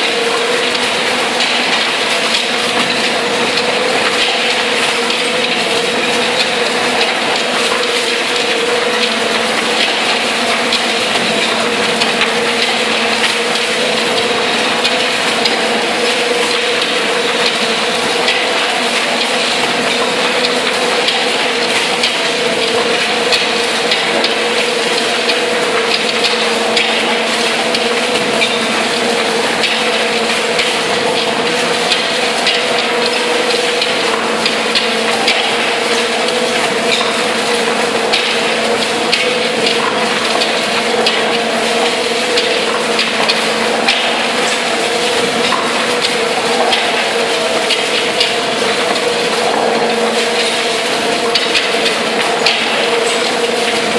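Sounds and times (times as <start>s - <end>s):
machine hum: 0.0s - 53.9s.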